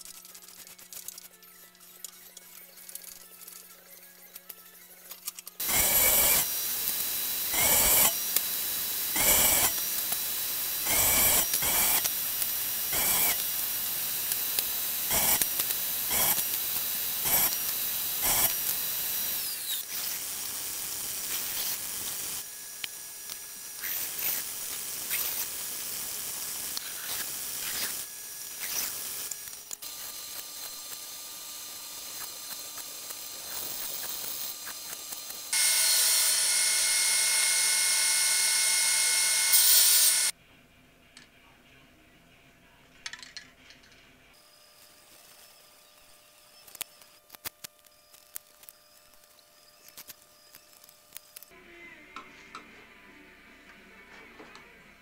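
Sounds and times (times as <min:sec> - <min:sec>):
quiet workshop noises: 0:00.0 - 0:55.0
bandsaw humming: 0:05.6 - 0:40.3.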